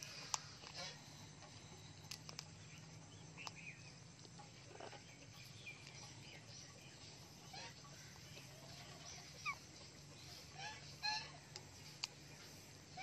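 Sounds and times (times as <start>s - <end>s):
faint bird chirps: 0.0s - 13.0s
low steady hum: 0.0s - 13.0s
small clicks: 2.0s - 2.5s.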